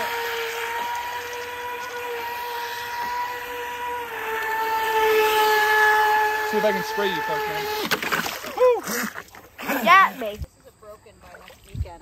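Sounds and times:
electric boat motor whining: 0.0s - 10.4s.

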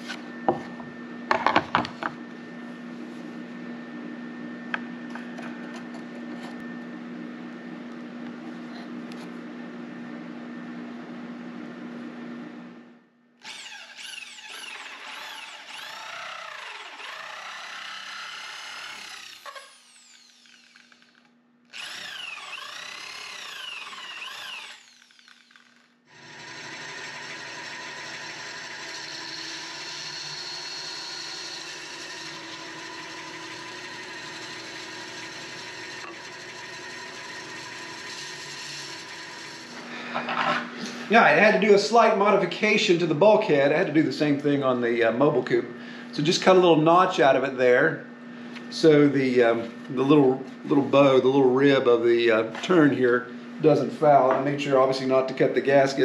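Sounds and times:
electric drill boring plastic: 13.4s - 39.8s
band saw cutting plastic: 13.4s - 39.9s.

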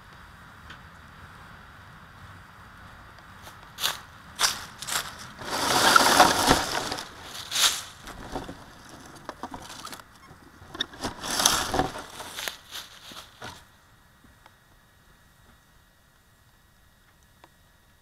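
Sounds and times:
truck crunching over leaves: 3.4s - 13.7s.

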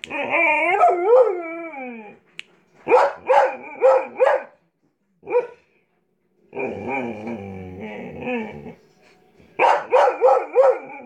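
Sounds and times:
dog howling growly: 0.1s - 2.2s, 6.5s - 8.8s.

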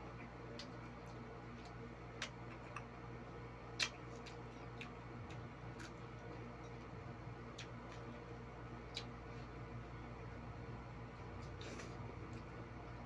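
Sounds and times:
low electrical hum: 0.0s - 13.0s
mouth smacks while eating: 3.7s - 6.0s, 8.8s - 9.5s.

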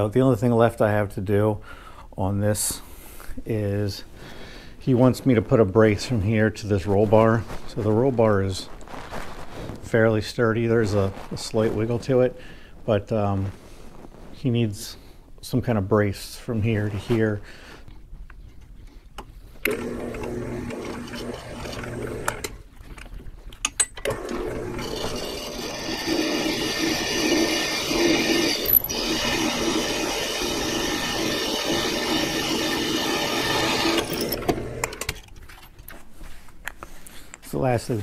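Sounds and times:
motorized tool whining: 19.7s - 22.6s, 24.1s - 35.2s.

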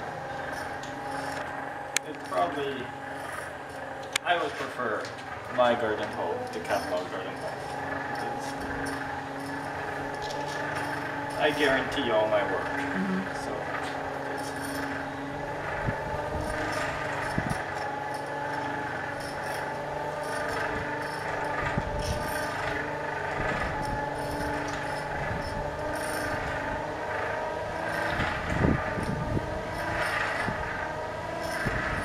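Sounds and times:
forge blower whirring air: 0.0s - 32.0s.

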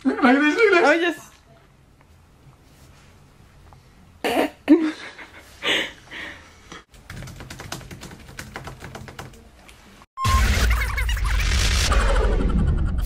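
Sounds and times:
fast typing on laptop keyboard: 6.9s - 9.5s.

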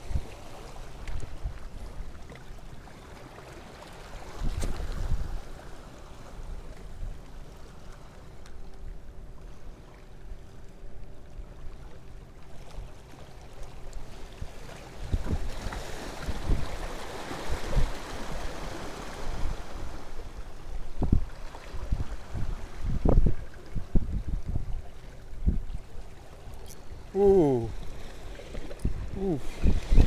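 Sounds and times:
waves splashing against rocks: 0.0s - 6.6s, 12.7s - 30.0s.

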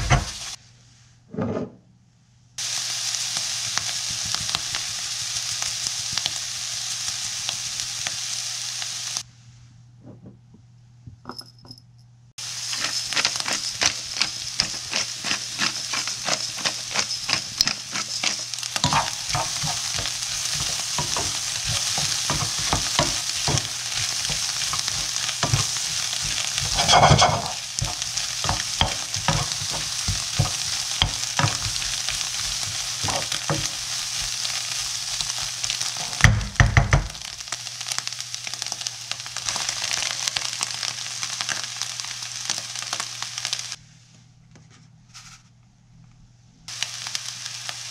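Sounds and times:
food sizzling in a wok: 0.0s - 0.6s, 2.6s - 9.3s, 12.4s - 43.8s, 46.7s - 47.9s
spatula scraping a wok: 12.4s - 36.3s.

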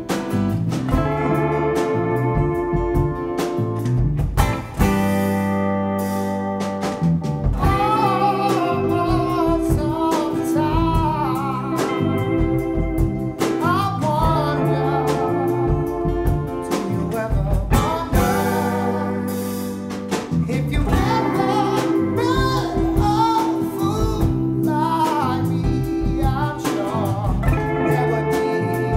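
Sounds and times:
guitar playing chords: 0.0s - 28.9s
person singing: 7.6s - 28.9s.

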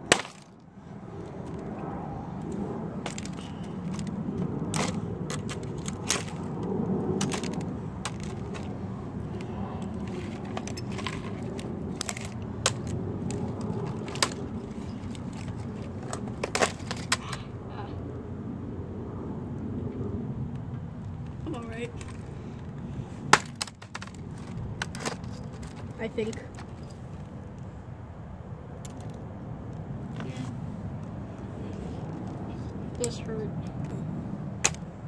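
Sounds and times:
hammer cracking plastic case: 0.0s - 0.6s, 4.7s - 6.5s, 7.2s - 8.7s, 10.1s - 14.4s, 15.1s - 17.3s, 23.3s - 25.9s.

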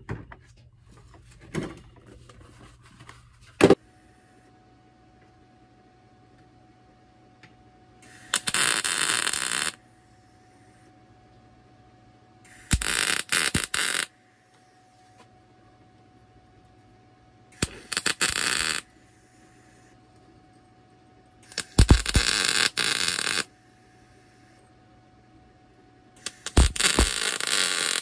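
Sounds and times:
arc welder crackling: 8.0s - 9.8s, 12.5s - 14.2s, 17.5s - 20.3s, 21.4s - 23.5s, 26.2s - 28.0s.

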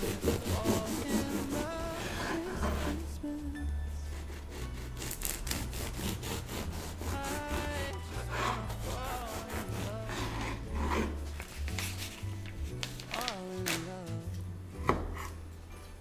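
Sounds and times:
bread knife sawing through loaf: 0.0s - 3.1s, 4.1s - 11.3s.

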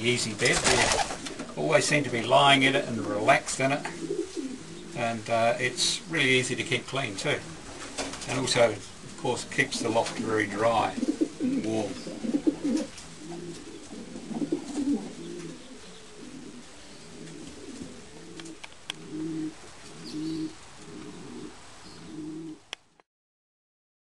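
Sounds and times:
pigeons cooing: 0.0s - 22.7s
faint sharp clicks: 22.7s - 23.0s.

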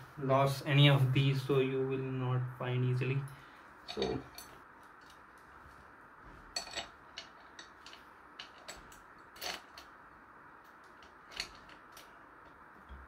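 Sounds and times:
screws clinking on metal frame: 3.9s - 4.6s, 6.5s - 9.9s, 10.8s - 12.1s.

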